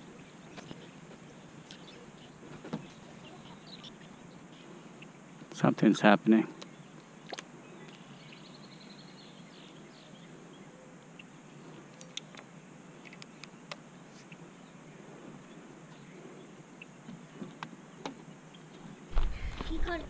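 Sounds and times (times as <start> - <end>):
faint bird chirps: 0.0 - 5.4.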